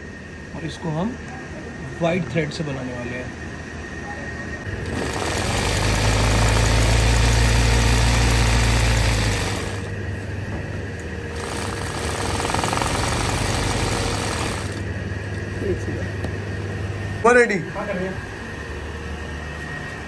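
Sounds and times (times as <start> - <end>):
sewing machine humming: 4.7 - 9.9, 11.3 - 14.9.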